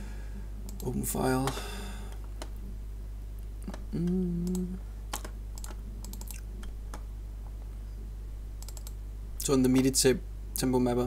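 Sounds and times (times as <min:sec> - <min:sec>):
low electrical hum: 0:00.0 - 0:11.0
person humming: 0:03.6 - 0:04.9
computer mouse clicks: 0:04.4 - 0:07.0, 0:08.6 - 0:09.0
keyboard keys clicking: 0:04.4 - 0:07.0, 0:08.6 - 0:09.0.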